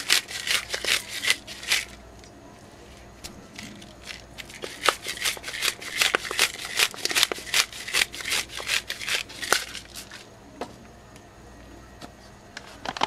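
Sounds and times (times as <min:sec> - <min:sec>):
pepper grinder crackly clicks: 0:00.0 - 0:02.3, 0:03.6 - 0:10.2.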